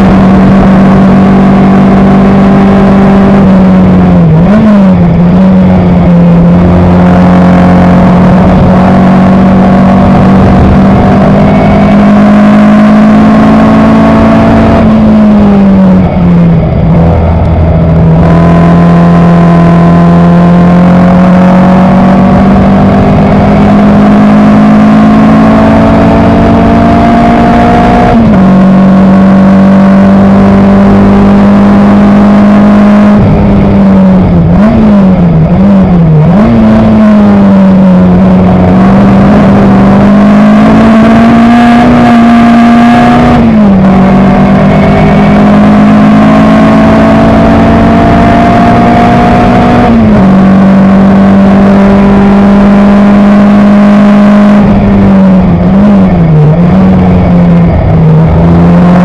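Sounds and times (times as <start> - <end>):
racing car engine revving: 0.0 - 59.0.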